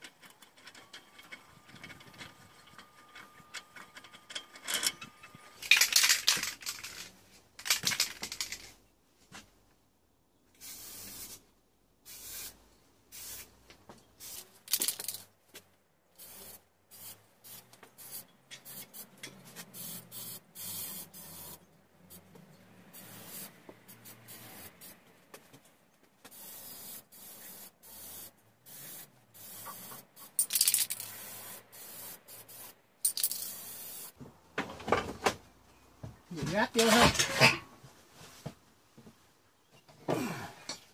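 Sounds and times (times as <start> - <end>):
spray paint can hissing: 10.6 - 11.4, 12.0 - 13.5, 14.2 - 15.2, 16.2 - 21.6, 22.9 - 25.0, 26.3 - 34.2.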